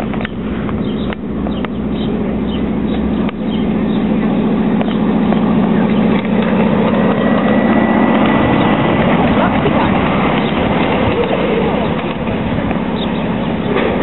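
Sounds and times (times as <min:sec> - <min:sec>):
sharp clicks from train: 0:00.0 - 0:01.8, 0:04.8 - 0:14.0
miniature train engine pulsing: 0:00.0 - 0:14.0.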